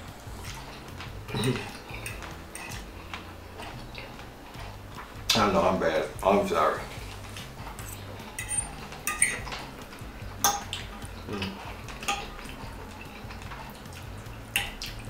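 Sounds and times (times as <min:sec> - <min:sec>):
fork scraping a ceramic plate: 0:07.7 - 0:09.5.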